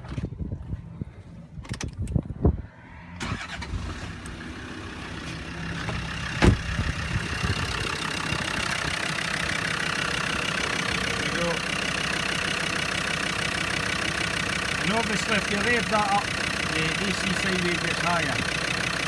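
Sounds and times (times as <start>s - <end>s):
diesel engine idling: 2.2s - 19.0s
sharp thump: 5.9s - 6.7s.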